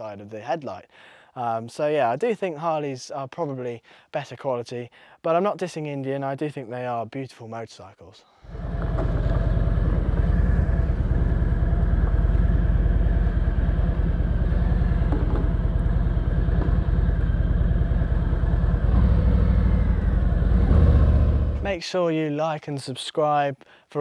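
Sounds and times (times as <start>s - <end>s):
motorcycle engine running: 8.5s - 21.7s.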